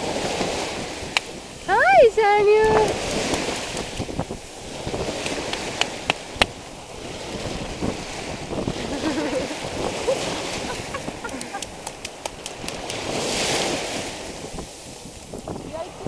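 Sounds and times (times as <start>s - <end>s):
surf washing: 0.0s - 16.0s
wind buffeting microphone: 0.0s - 16.0s.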